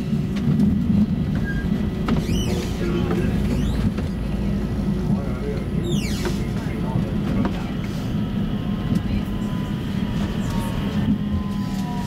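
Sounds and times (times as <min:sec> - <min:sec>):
tram rumbling on rails: 0:00.0 - 0:12.0.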